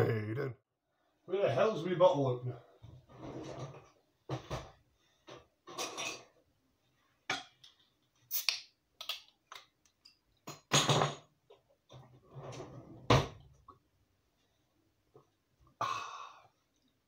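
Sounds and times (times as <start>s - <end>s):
cutlery clattering: 5.6s - 6.4s, 10.5s - 11.3s
bottle opener on bottle cap: 8.3s - 8.6s.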